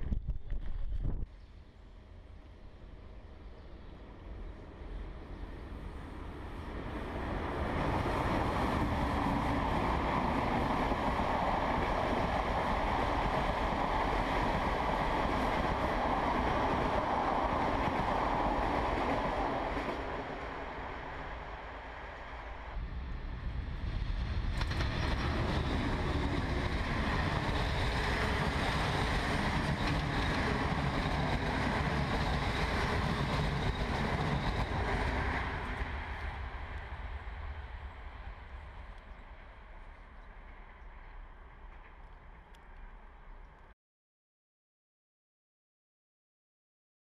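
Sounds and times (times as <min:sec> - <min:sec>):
train wheels rumbling on rails: 0:04.6 - 0:43.5.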